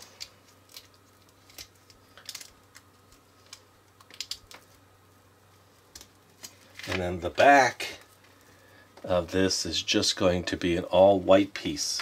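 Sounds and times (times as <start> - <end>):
plastic pieces clicking together: 0.1 - 4.7.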